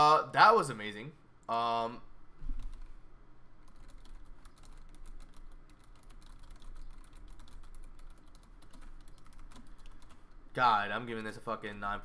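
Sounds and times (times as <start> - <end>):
low steady hum: 0.0 - 12.0
typing on a keyboard: 3.6 - 10.2, 11.0 - 11.9.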